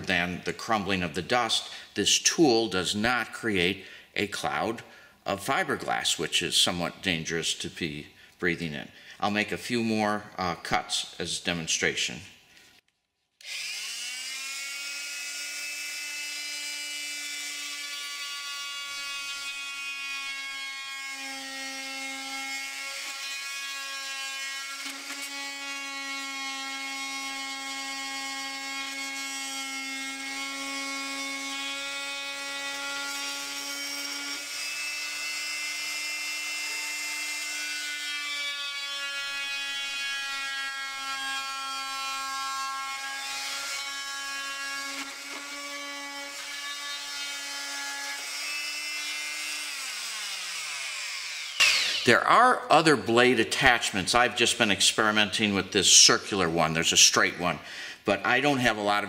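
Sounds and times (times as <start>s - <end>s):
oscillating multi-tool cutting: 13.4s - 53.1s.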